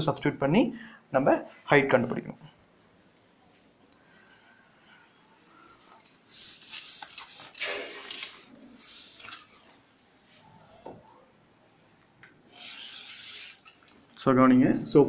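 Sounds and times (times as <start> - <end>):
duster rubbing on blackboard: 6.3 - 7.6.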